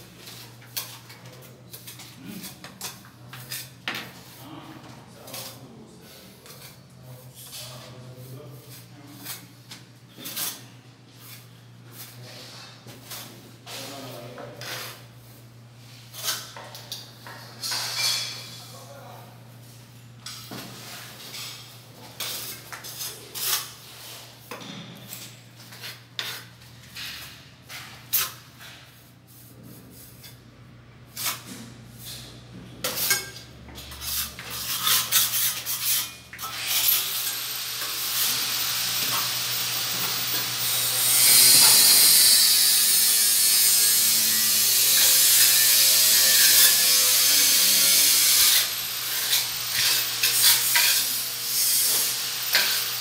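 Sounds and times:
trowel scraping mortar: 33.8 - 53.0.

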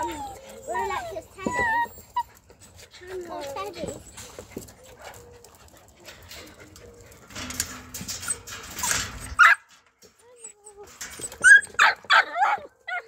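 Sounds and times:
dog crying loudly: 0.0 - 2.3
small dogs whining and panting: 0.0 - 9.4, 10.2 - 13.0.

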